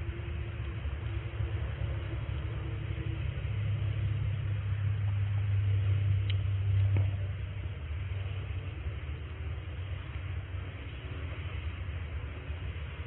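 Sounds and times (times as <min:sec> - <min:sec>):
wind rumble on microphone: 0:00.0 - 0:13.0
faint clicks: 0:06.2 - 0:07.2.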